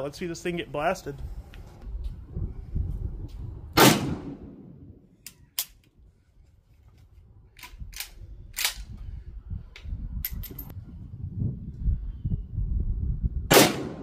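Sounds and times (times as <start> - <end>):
wind rumbling on microphone: 0.0 - 14.0
rifle gunshots: 3.8 - 4.7, 13.5 - 14.0.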